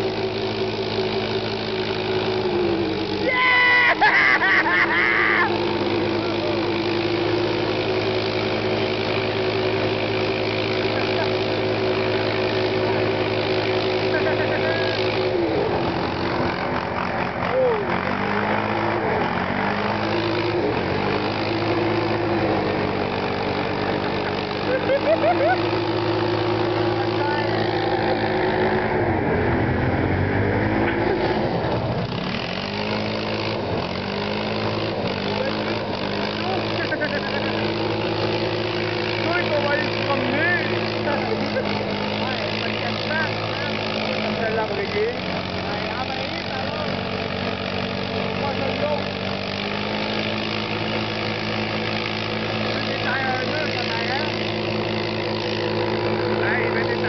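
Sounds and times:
atv engine running: 0:00.0 - 0:57.0
person shouting: 0:03.2 - 0:04.2, 0:05.0 - 0:05.6.

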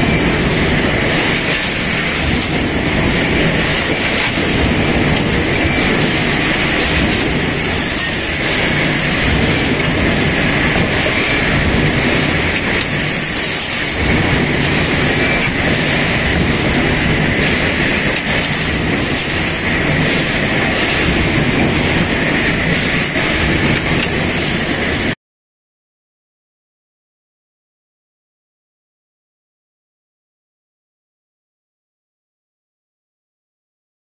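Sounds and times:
factory machinery noise: 0:00.0 - 0:25.2.

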